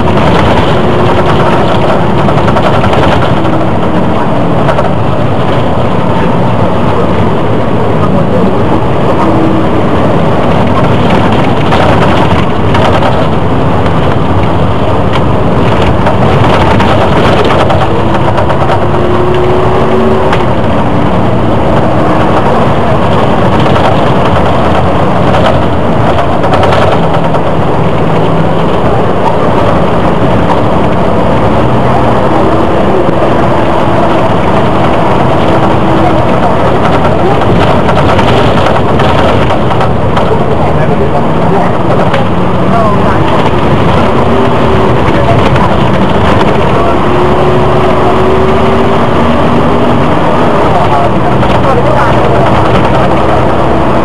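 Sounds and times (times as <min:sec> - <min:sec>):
bodywork rattling: 0:00.0 - 0:07.7, 0:08.6 - 0:54.0
bus engine running: 0:00.0 - 0:54.0.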